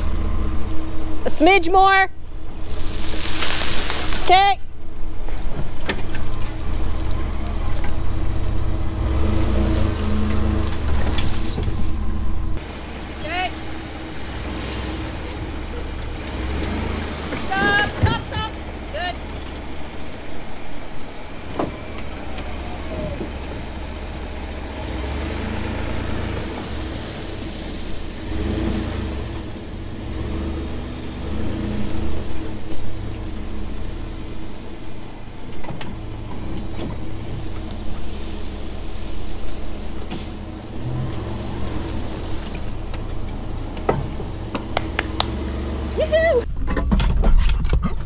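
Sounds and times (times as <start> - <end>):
pickup truck engine running: 0.0 - 46.5.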